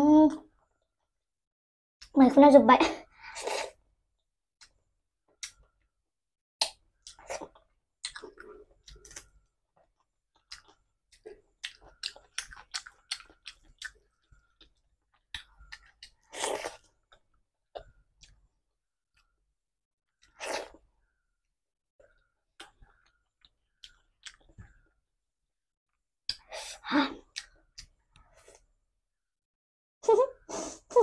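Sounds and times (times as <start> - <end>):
wet chewing clicks: 10.4 - 18.4, 22.0 - 24.6.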